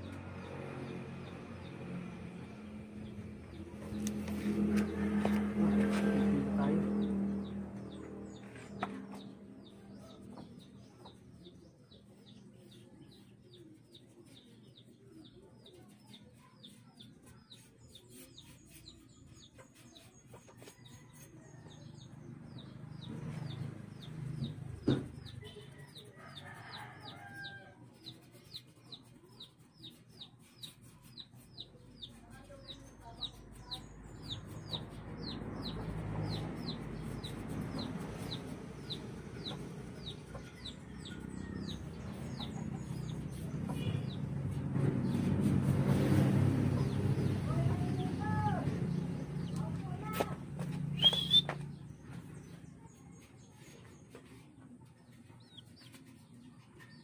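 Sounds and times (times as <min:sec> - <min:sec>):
chick peeping: 0:28.0 - 0:45.2, 0:46.7 - 0:57.0.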